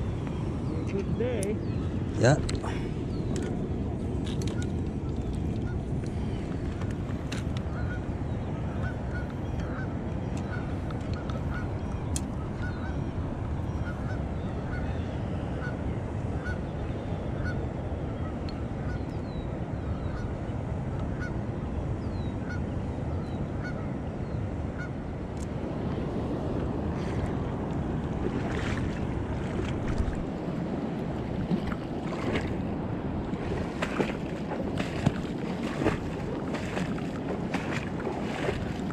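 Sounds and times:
wind: 0.0s - 38.9s
river water rushing: 25.6s - 38.9s.

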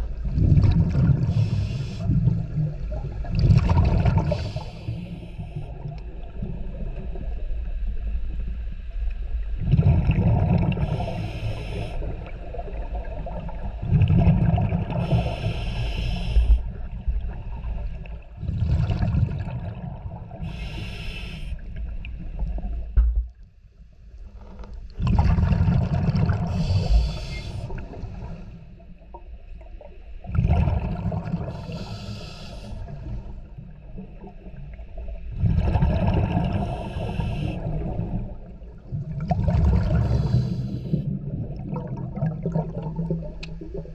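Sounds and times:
exhaled bubbles rumbling: 0.0s - 20.8s, 24.3s - 43.9s
regulator air hiss: 4.3s - 5.7s, 10.9s - 12.1s, 15.0s - 16.6s, 20.4s - 21.6s, 26.5s - 27.8s, 31.6s - 32.9s, 36.6s - 37.7s.

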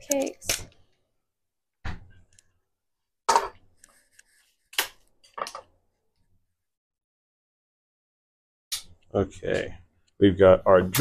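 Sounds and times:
kitchen items clattering on counters: 3.3s - 3.6s.

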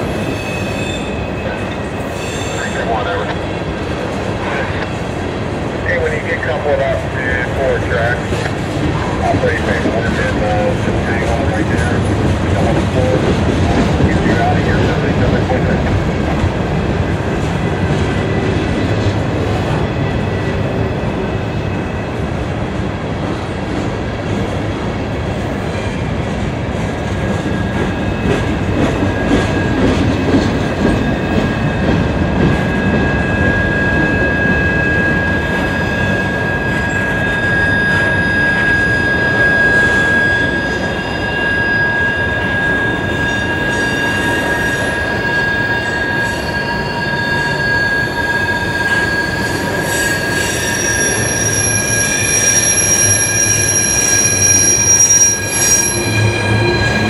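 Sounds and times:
high wheel squeal: 0.0s - 3.2s, 32.5s - 57.0s
steel wheels rumbling on rail: 0.0s - 57.0s.

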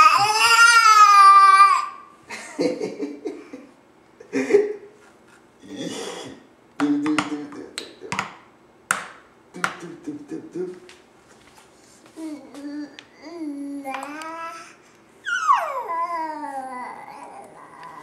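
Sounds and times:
baby vocal sounds: 0.0s - 2.1s, 12.2s - 18.0s
plastic toy drum tapped: 8.1s - 9.8s.

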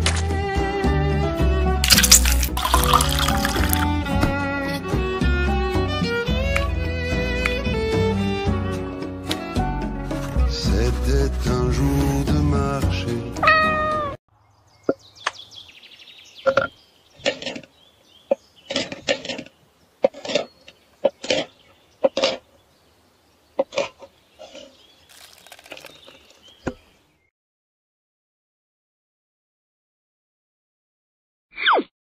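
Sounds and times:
music: 0.0s - 1.9s, 2.9s - 14.2s.

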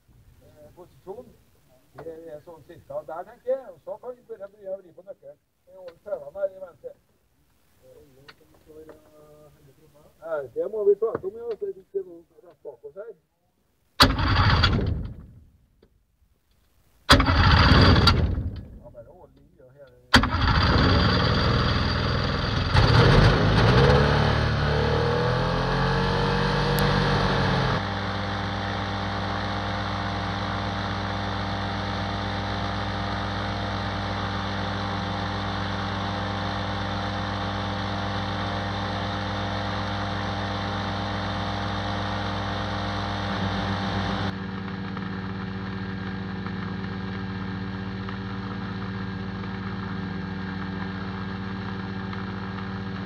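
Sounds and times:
microlight engine and propeller: 14.0s - 15.2s, 17.1s - 18.8s, 20.1s - 24.1s, 26.7s - 53.0s.

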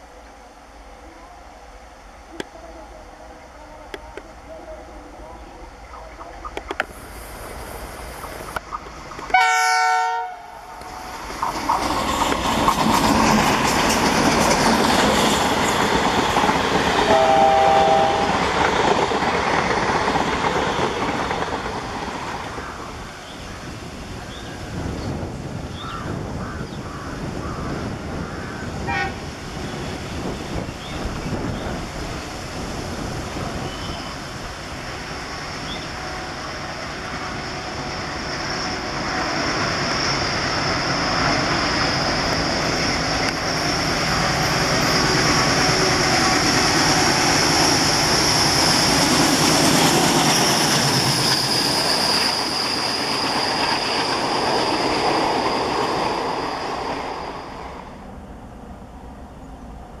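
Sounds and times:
diesel locomotive engines working: 0.0s - 26.4s, 27.2s - 60.0s
train rumble: 0.0s - 60.0s
steady high whine: 17.0s - 18.8s.

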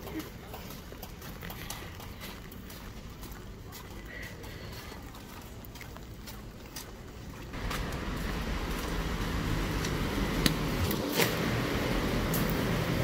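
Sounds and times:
ventilation air rushing: 7.6s - 13.0s.

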